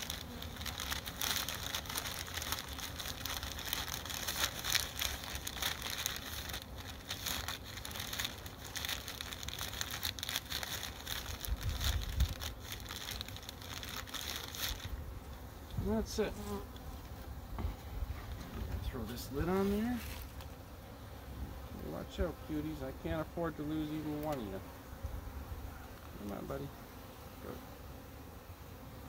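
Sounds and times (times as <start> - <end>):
rice grains shifting: 0.0 - 14.9, 19.1 - 20.4
paper bag crinkling: 0.0 - 15.0, 19.4 - 20.5.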